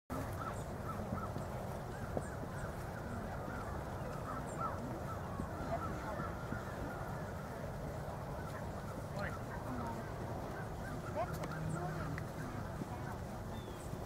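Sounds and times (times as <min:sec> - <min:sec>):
birds honking calls: 0:00.1 - 0:14.0
low background noise: 0:00.1 - 0:14.0.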